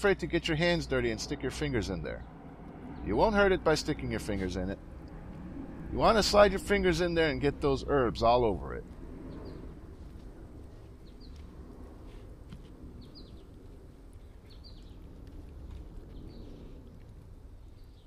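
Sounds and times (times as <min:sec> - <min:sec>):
low steady rumble: 0:00.0 - 0:18.0
bird chirping: 0:00.1 - 0:04.6, 0:09.3 - 0:09.7, 0:11.0 - 0:11.4, 0:13.0 - 0:13.6, 0:14.2 - 0:15.1.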